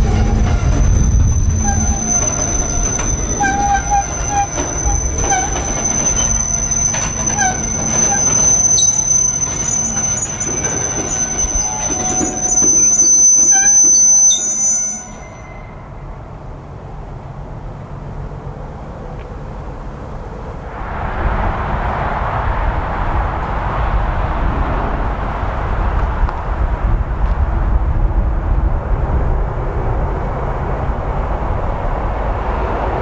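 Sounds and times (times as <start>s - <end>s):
train wheels squealing: 0.0s - 16.4s
freight train rumbling by: 0.0s - 33.0s.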